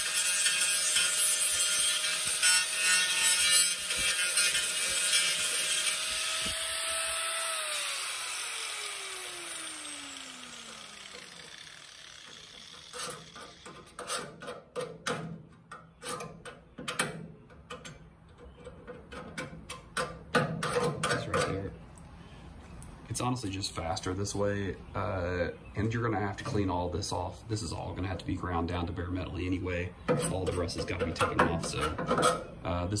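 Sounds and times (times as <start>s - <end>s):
angle grinder whining: 0.0s - 14.1s
sharp clicks and knocks: 12.2s - 21.7s.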